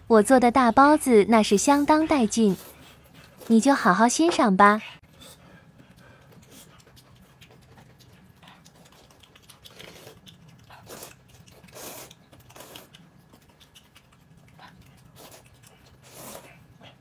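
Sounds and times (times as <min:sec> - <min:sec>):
chewing: 0:05.2 - 0:17.0
noodles being slurped: 0:08.6 - 0:16.7.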